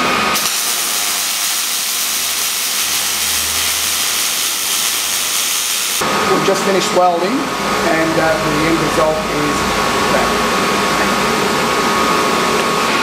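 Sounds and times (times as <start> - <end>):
welding arc hissing: 0.3 - 6.0.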